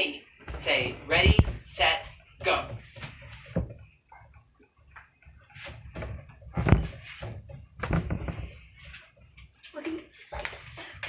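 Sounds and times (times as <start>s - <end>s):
objects being handled knocking: 1.2s - 9.6s.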